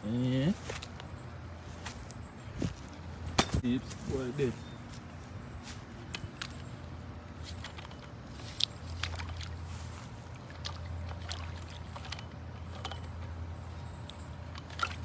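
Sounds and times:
low steady hum: 0.0s - 15.0s
short splashes and knocks: 7.4s - 13.2s, 14.1s - 15.0s
net sloshing through puddle: 7.5s - 12.2s, 14.5s - 15.0s.

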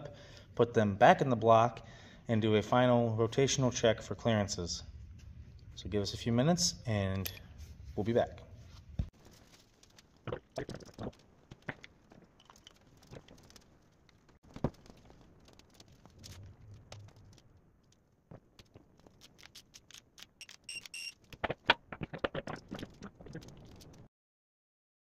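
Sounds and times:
high electronic beeps: 20.4s - 21.2s.

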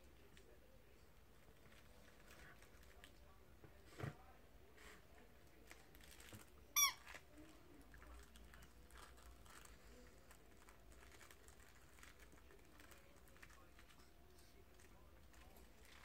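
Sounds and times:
faint clicking and rustling: 5.4s - 16.0s
squeaky dog toy squeak: 6.8s - 7.1s.

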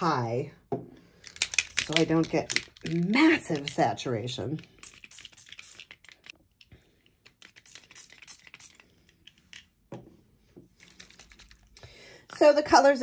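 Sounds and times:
spray bottle hissing puffs: 4.6s - 6.3s, 7.3s - 8.9s.

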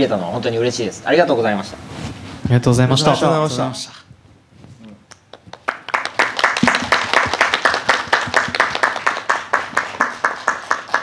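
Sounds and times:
people clapping: 5.1s - 11.0s.

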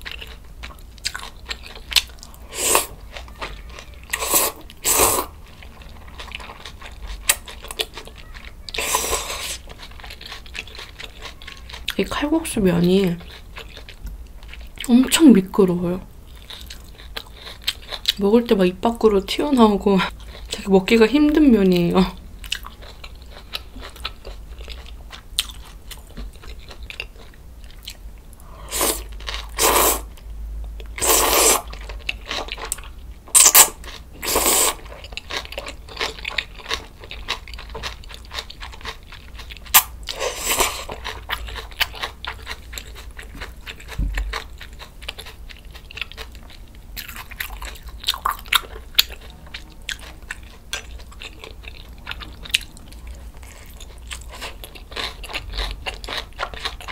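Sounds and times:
wet chewing: 0.0s - 12.1s, 21.8s - 30.2s, 30.8s - 56.9s
loud noodle slurps: 4.2s - 5.3s, 8.8s - 9.6s, 28.6s - 30.1s, 31.0s - 31.7s, 33.3s - 34.8s, 39.8s - 40.9s.

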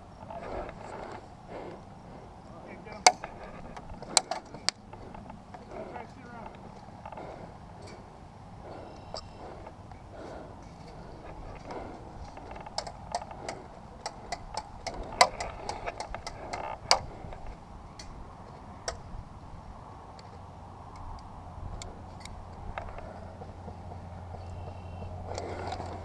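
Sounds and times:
sharp irregular clicks and snaps: 2.4s - 8.0s, 10.6s - 19.0s, 20.1s - 23.2s.

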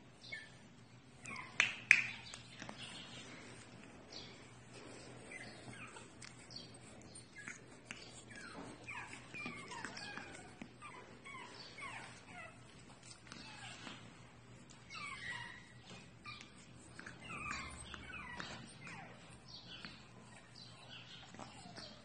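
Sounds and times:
dog whining in high squeaks: 5.3s - 14.0s, 14.7s - 22.0s.

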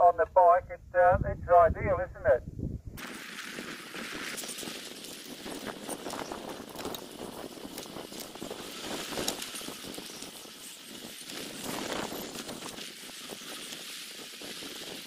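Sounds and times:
bicycle rolling on paved path: 3.0s - 15.0s.

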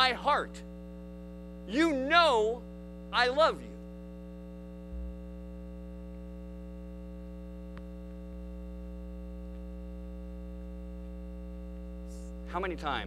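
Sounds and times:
electrical mains hum: 0.0s - 13.0s
faint click: 7.7s - 7.9s.

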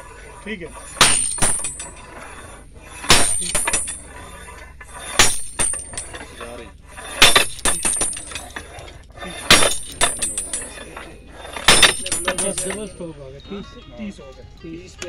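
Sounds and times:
drive hammer clanking on anvil: 0.7s - 2.3s, 2.9s - 13.1s.

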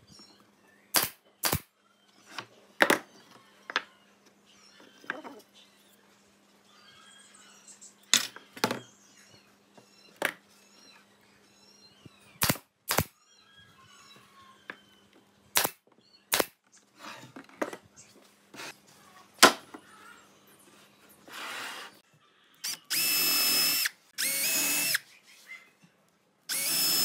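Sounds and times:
nail gun shots: 0.9s - 1.7s, 12.4s - 13.1s, 15.6s - 16.6s.

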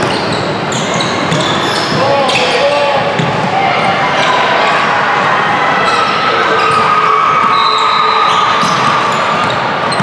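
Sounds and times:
gym background noise: 0.0s - 10.0s
basketballs bouncing on gym floor: 1.0s - 2.2s, 3.1s - 3.5s, 8.6s - 10.0s.

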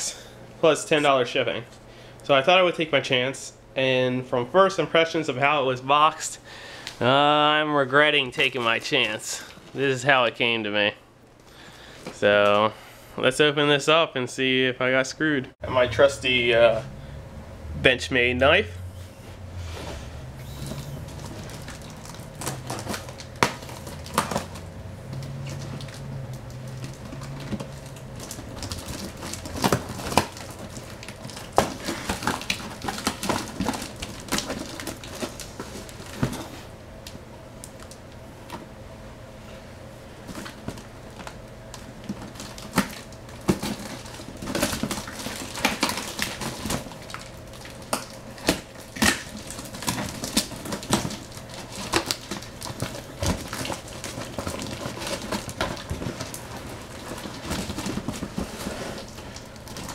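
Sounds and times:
knife cutting packaging: 20.4s - 36.3s
tape and plastic crackling: 20.4s - 38.6s, 40.2s - 59.9s.

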